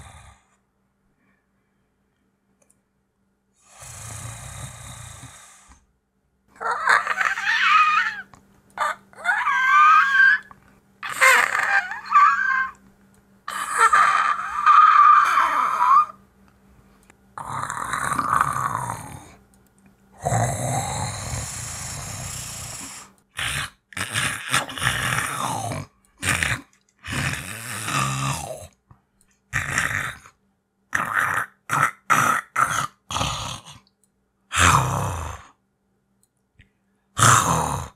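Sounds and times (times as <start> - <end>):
person yowling like a creature: 6.6 - 12.8, 13.5 - 16.2
rough growls: 17.4 - 19.4, 20.2 - 28.8, 29.6 - 30.3, 31.0 - 33.9, 37.2 - 37.9.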